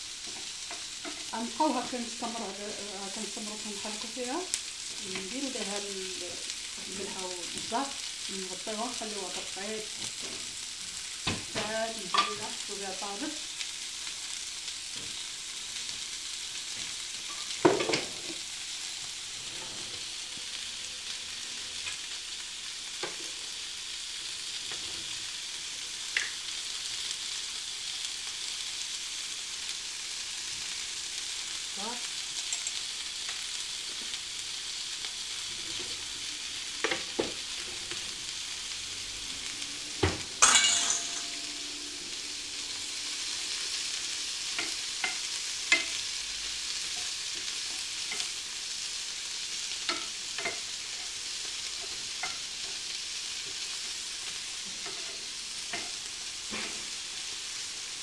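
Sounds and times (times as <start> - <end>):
vegetables sizzling in a frying pan: 0.0 - 58.0.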